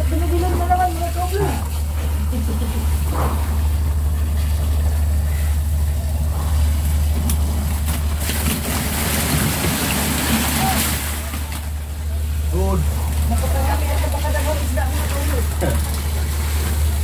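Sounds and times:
boat engine low drone: 0:00.0 - 0:17.0.

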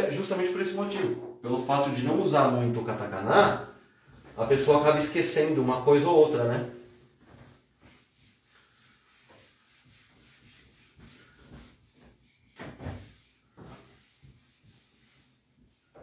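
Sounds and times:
eraser wiping a whiteboard: 0:03.6 - 0:16.0.

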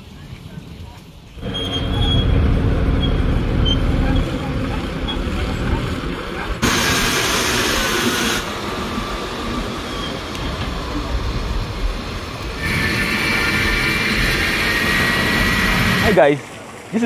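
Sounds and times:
diesel truck engines: 0:00.0 - 0:17.0
steady high whine: 0:01.4 - 0:16.3.

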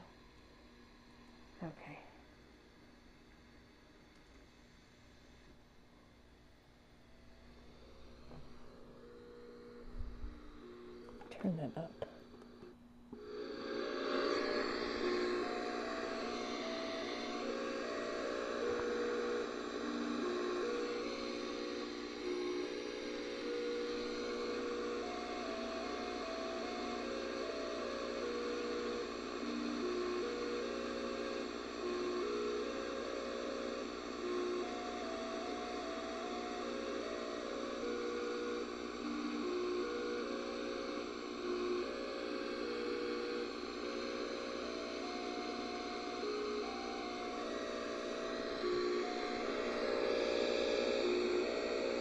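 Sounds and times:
radio hiss and hum: 0:07.8 - 0:52.0
radio tune of steady tones: 0:11.1 - 0:12.3, 0:13.2 - 0:52.0.

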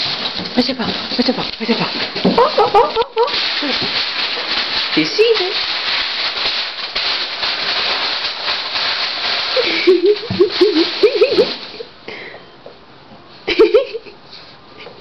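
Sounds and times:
puppy rustling and snuffling: 0:00.0 - 0:11.9.

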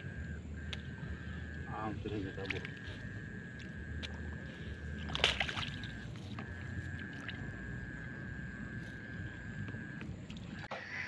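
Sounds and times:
rustle and splash: 0:04.5 - 0:07.5.

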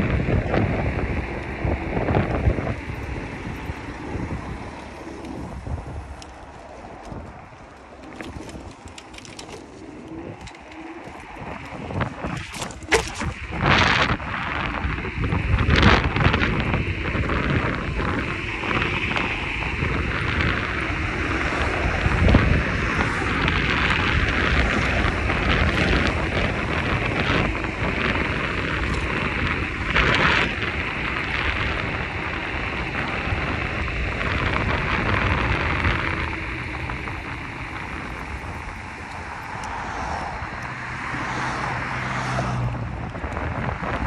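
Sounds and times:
street noise: 0:00.0 - 0:44.0
wind rumbling on microphone: 0:00.0 - 0:44.0.

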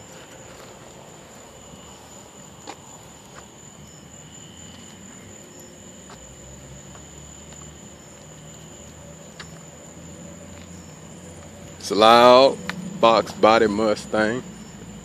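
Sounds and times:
crickets chirring: 0:00.0 - 0:15.0
vehicle idling rumble: 0:07.7 - 0:15.0.

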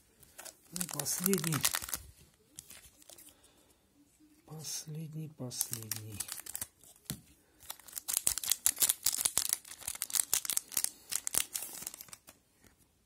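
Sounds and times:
card pack wrapper crinkling: 0:00.2 - 0:03.4, 0:05.4 - 0:12.4.

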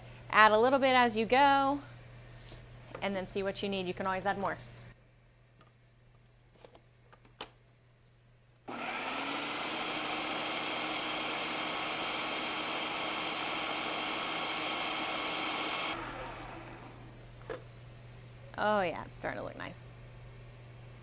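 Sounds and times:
food processor motor chopping: 0:08.7 - 0:17.1.

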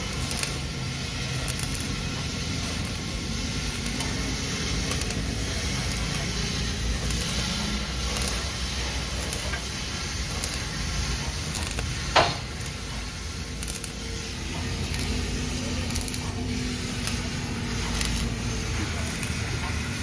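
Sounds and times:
sharp welding crack: 0:00.0 - 0:20.0
welding arc hiss and crackle: 0:00.0 - 0:20.0.

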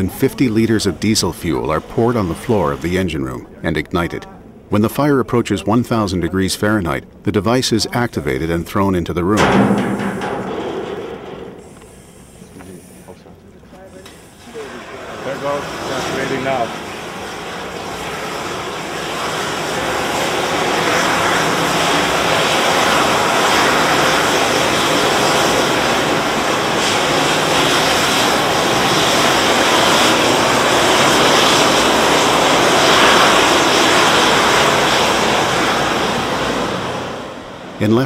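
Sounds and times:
aerosol discharge rushing: 0:11.1 - 0:13.0.

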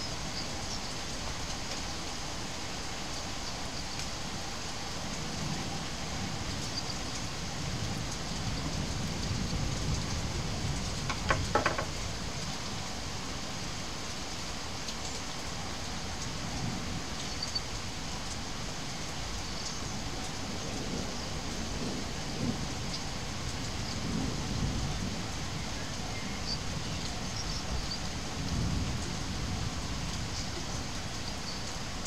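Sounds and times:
steady rain hiss: 0:00.0 - 0:32.0
sharp taps: 0:11.1 - 0:11.9.

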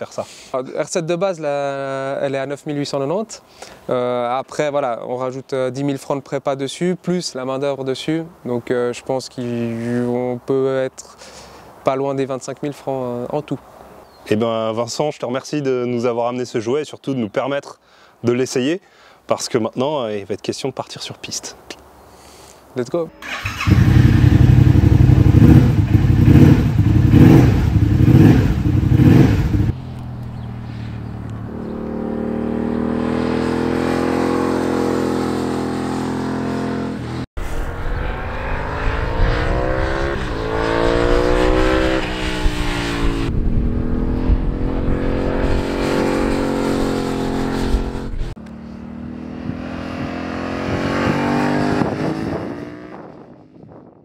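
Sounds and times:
motorcycle engine revving: 0:23.2 - 0:53.3
motorcycle passing on track: 0:23.2 - 0:53.8.

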